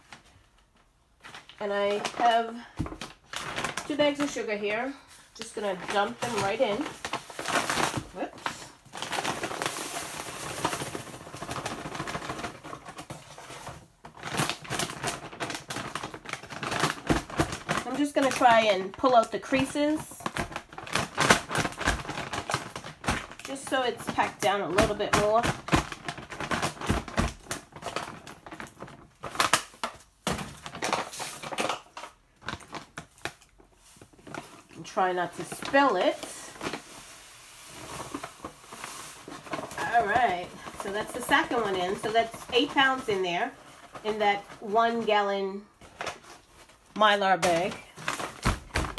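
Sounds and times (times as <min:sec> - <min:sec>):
bags crinkling and rustling: 0:00.0 - 0:48.9
sugar pouring into a bag: 0:34.8 - 0:43.0.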